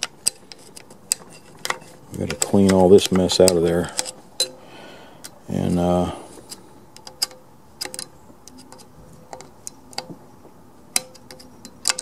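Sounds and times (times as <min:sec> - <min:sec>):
screwdriver clicking and scraping metal: 0:11.0 - 0:12.0.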